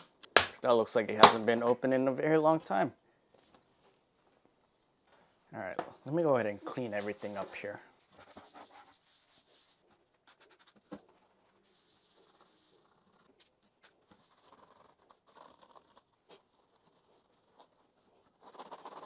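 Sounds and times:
paper towel rubbing laptop: 6.8 - 10.8, 11.5 - 19.0.

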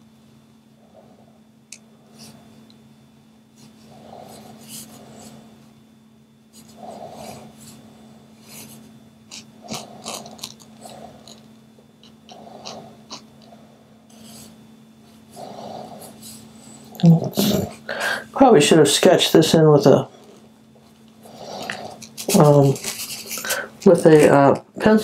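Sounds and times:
marker tip scratching on painting: 21.6 - 24.3.

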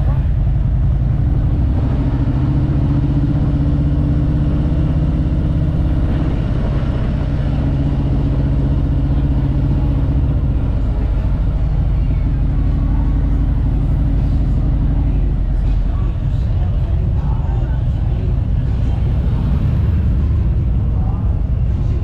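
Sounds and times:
motorcycle engine rumbling: 0.0 - 22.0.

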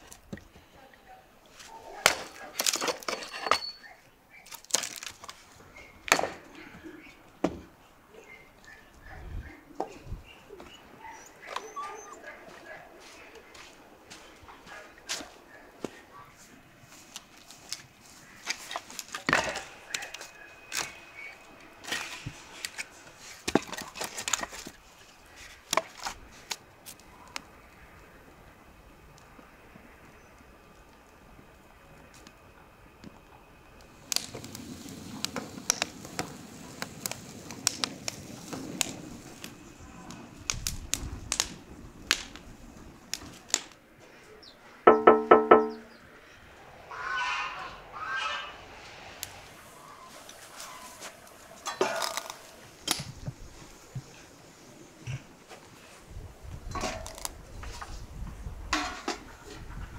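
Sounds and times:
sharp cracks and knocks: 2.0 - 3.6, 4.4 - 5.4, 6.0 - 6.5, 21.8 - 24.8, 35.2 - 39.5, 40.5 - 42.5, 43.1 - 43.8, 51.6 - 53.4
hard objects knocking and cracking: 23.4 - 24.8.

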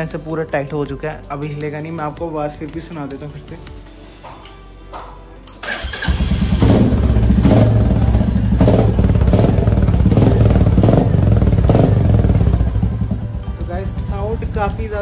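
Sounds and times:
motorcycle engine revving: 5.6 - 15.0.

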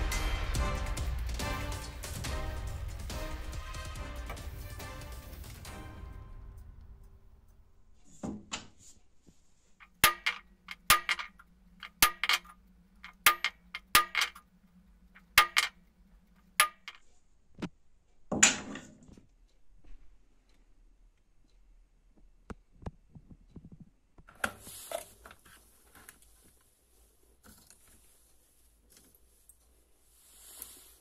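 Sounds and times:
hammer tapping metal punch: 9.8 - 14.4, 15.2 - 15.8, 16.6 - 17.0.

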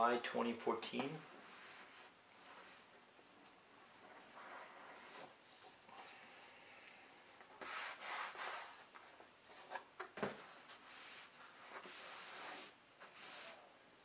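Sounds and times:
paperboard rubbing and sliding: 1.3 - 2.9, 4.0 - 5.4, 7.6 - 8.9, 10.7 - 13.6.

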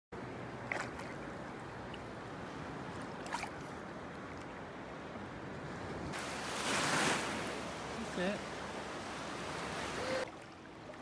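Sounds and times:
water lapping: 0.2 - 11.0
small splashes: 0.6 - 2.1, 2.9 - 4.5.

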